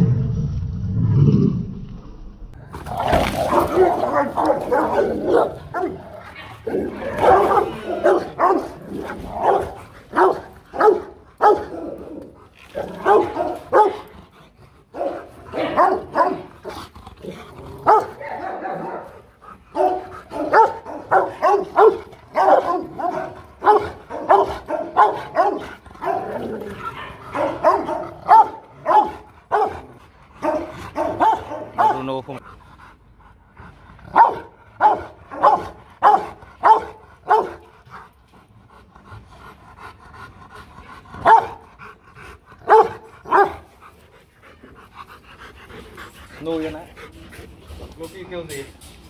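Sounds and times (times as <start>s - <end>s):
dogs barking: 3.4s - 14.2s, 14.9s - 16.8s, 17.8s - 32.4s, 34.1s - 37.7s, 41.2s - 41.8s, 42.6s - 43.8s.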